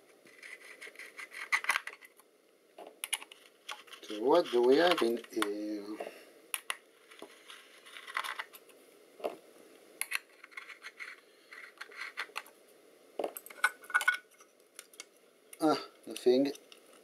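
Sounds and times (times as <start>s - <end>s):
metal parts clicking and scraping: 0.3s - 2.2s, 7.0s - 8.7s, 10.0s - 12.5s, 13.4s - 15.1s.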